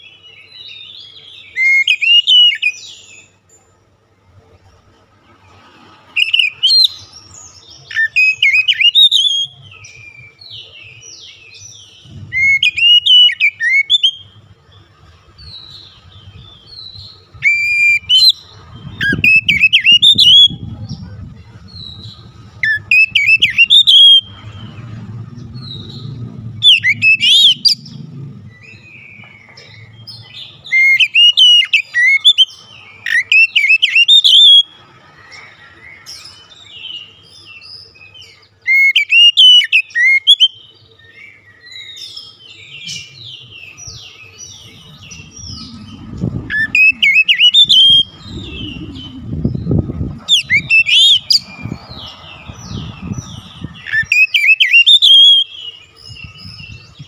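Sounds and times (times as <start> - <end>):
bird singing whistled phrases: 12.1 - 14.4, 19.0 - 20.6, 21.7 - 24.3, 26.6 - 27.9, 28.6 - 34.7, 38.7 - 40.6, 42.7 - 51.4, 53.8 - 56.6.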